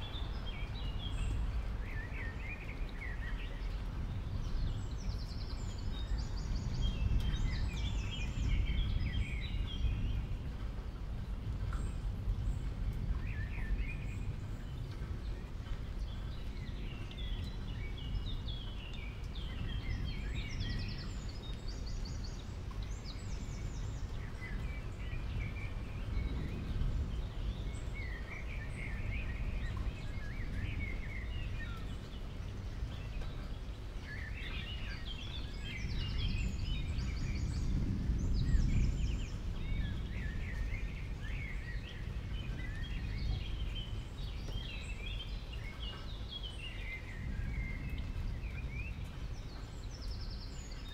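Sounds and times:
small birds chirping: 11.2 - 50.9.

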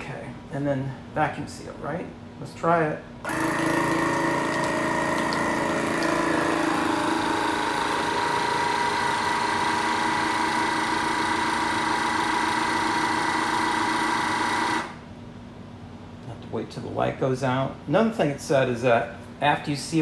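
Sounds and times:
vacuum sealer pump running: 3.2 - 15.1.

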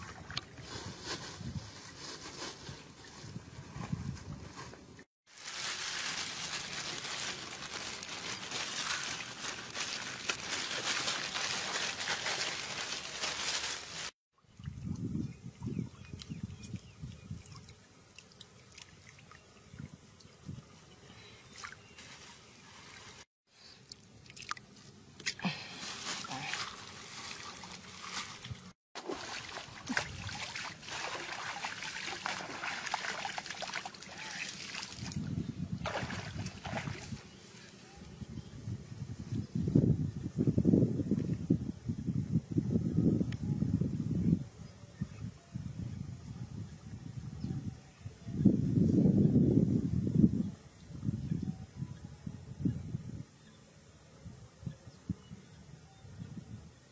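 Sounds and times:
plastic bag crinkling: 5.3 - 14.2
water splashing in ditch: 25.2 - 37.2.

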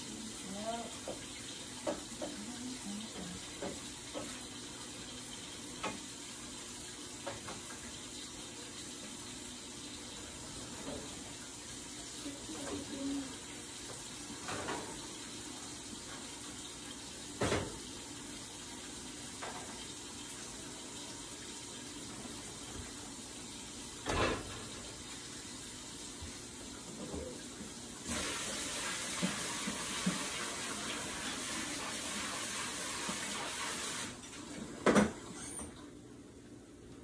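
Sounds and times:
eggs sizzling in a frying pan: 0.0 - 34.3.

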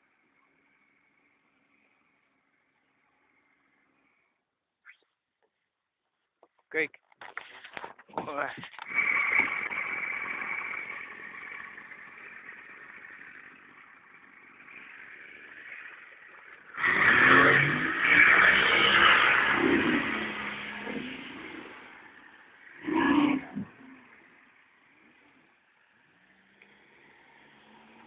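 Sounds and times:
outboard motor running: 8.6 - 25.1.

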